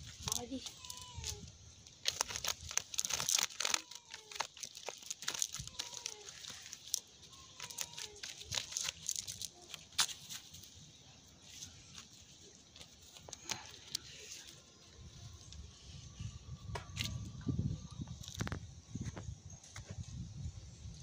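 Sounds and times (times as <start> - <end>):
net mesh rustling and crackling: 0.0 - 10.8.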